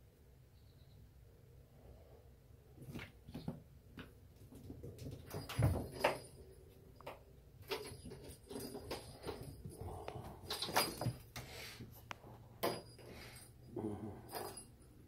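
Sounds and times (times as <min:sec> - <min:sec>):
kittens' paws patter and scuff: 0:02.8 - 0:13.5.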